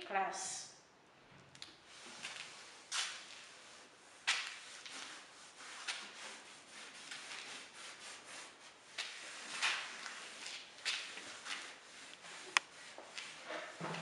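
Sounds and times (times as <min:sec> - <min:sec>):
chalk scratching on blackboard: 0:04.4 - 0:13.8.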